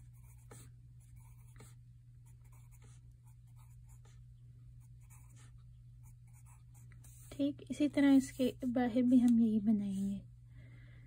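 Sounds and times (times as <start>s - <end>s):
pencil scratching on paper: 0.0s - 4.2s, 4.8s - 7.4s
steady low hum: 0.0s - 11.0s.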